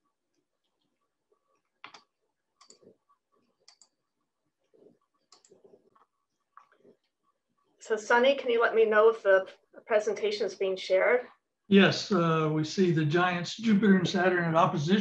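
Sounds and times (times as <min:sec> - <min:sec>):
mouse and keyboard clicks: 0:01.8 - 0:02.9, 0:03.6 - 0:04.0, 0:05.2 - 0:07.1.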